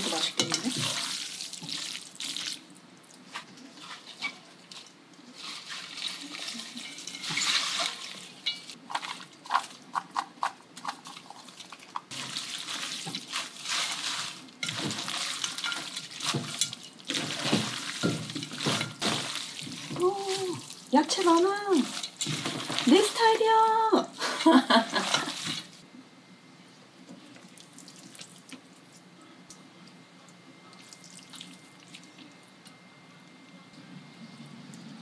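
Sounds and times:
wet squelching of hands mixing noodles: 0:00.0 - 0:23.9, 0:24.7 - 0:25.8, 0:27.2 - 0:29.1, 0:30.7 - 0:32.6
rustling of vegetables tossed: 0:03.2 - 0:09.8, 0:11.4 - 0:23.5.

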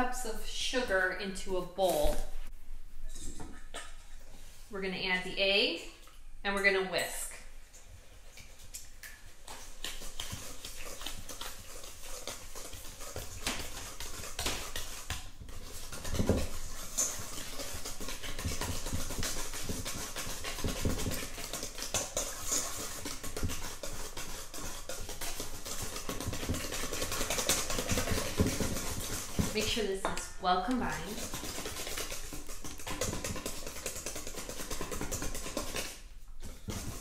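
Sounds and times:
whisk scraping a metal bowl: 0:09.4 - 0:37.0.

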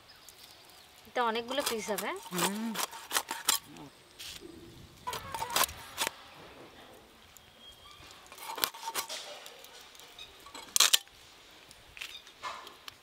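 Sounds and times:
knife scraping fish scales: 0:01.5 - 0:04.4, 0:08.3 - 0:09.8.

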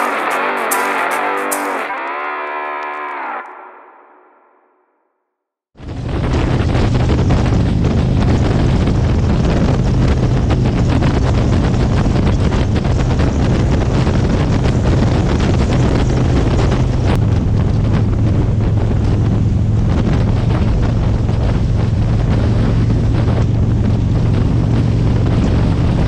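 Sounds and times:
motorcycle exhaust drone: 0:05.8 - 0:26.0
wind rush on microphone: 0:05.8 - 0:26.0.

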